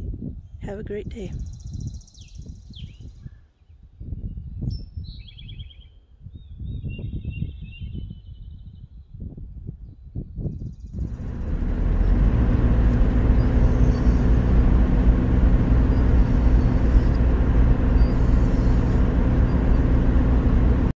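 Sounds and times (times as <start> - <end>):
road noise on wet road: 11.0 - 20.9
engine hum inside vehicle: 11.0 - 21.0.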